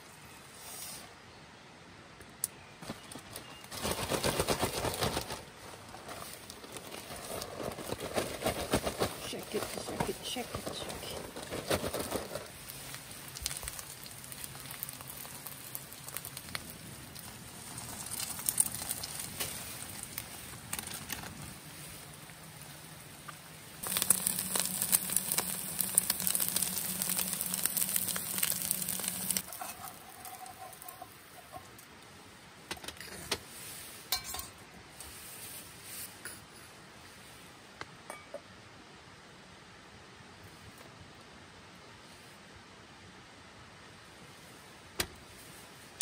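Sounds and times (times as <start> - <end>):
plastic bag rustling: 2.8 - 22.2, 23.8 - 31.6
batter sizzling in a pan: 12.6 - 20.2, 23.8 - 31.8.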